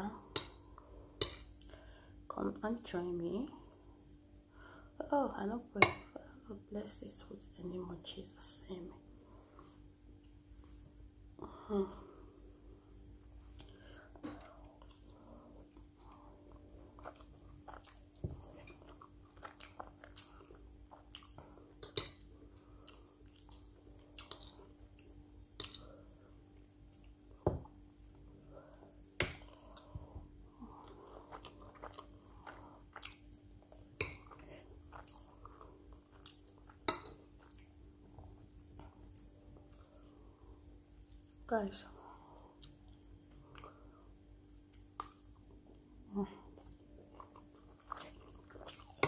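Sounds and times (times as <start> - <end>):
faint steady hum: 0.0 - 49.0
chewing and mouth smacking: 14.4 - 27.2, 30.7 - 40.2, 42.6 - 43.8, 44.6 - 45.5, 46.5 - 49.0.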